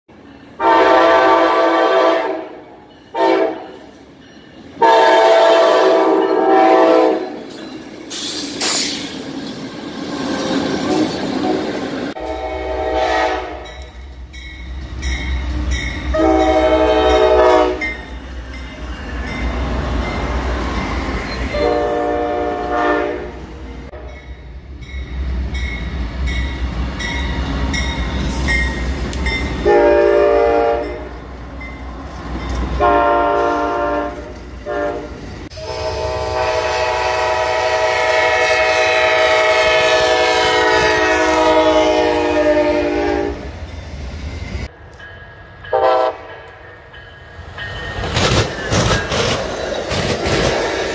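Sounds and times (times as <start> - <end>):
train rumble and wheel noise: 0.1 - 50.9
locomotive air horns: 0.6 - 3.8, 4.8 - 7.4, 12.1 - 13.7, 16.1 - 18.0, 21.5 - 24.1, 29.6 - 31.1, 32.8 - 43.5, 45.7 - 46.3.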